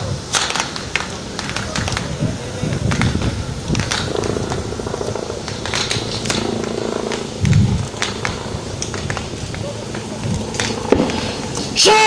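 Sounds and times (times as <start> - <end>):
crowd hum: 0.0 - 12.0
sharp cracks: 0.0 - 12.0
low rumble: 2.2 - 11.8.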